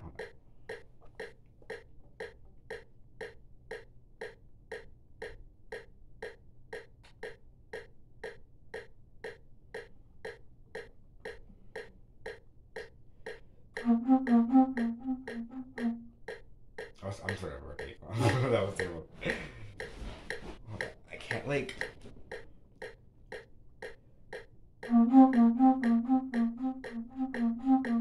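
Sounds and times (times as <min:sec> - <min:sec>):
metronome clicking: 0:00.1 - 0:17.9, 0:21.3 - 0:28.0
low flute notes: 0:13.8 - 0:16.1, 0:24.8 - 0:28.0.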